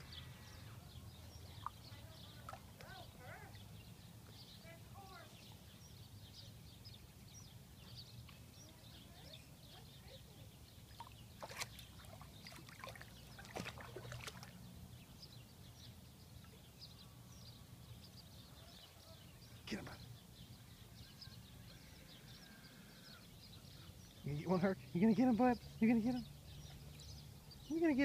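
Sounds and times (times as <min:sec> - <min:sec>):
water splashing and lapping: 0:01.5 - 0:03.0, 0:10.9 - 0:14.8.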